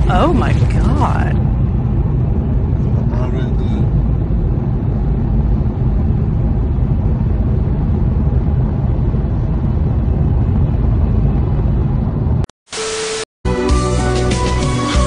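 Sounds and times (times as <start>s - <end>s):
road noise inside car: 0.0s - 12.5s.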